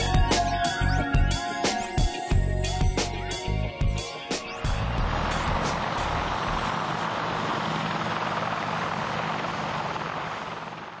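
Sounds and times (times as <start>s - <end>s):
helicopter rotor noise: 4.4s - 11.0s
low hum: 4.6s - 10.8s.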